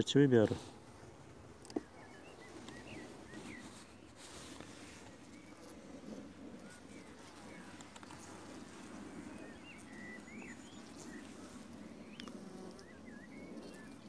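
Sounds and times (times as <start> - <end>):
bees buzzing: 0.7 - 14.0
bird chirping: 1.7 - 4.1, 9.2 - 14.0.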